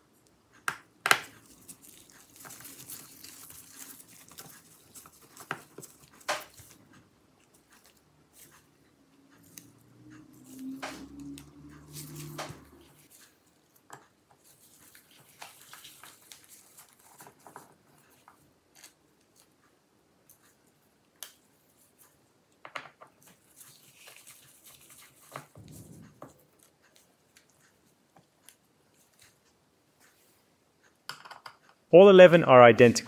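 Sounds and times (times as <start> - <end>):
gloved hands rubbing: 23.3 - 26.1.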